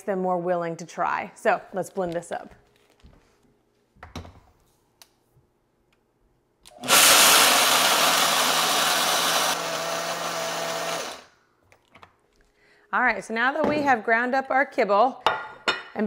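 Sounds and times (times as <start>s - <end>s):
blender grinding dry kibble: 6.7s - 11.3s.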